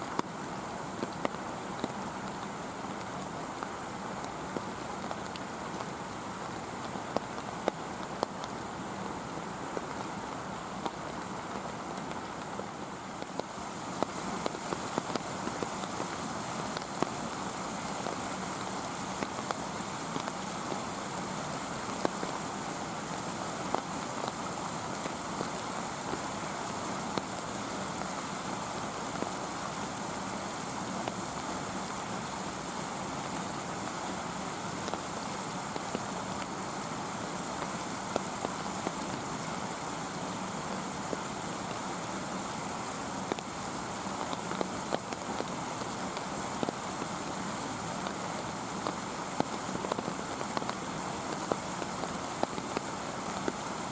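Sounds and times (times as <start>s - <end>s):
sharp ticks of raindrops: 0.0s - 53.9s
steady rain hiss: 0.0s - 53.9s.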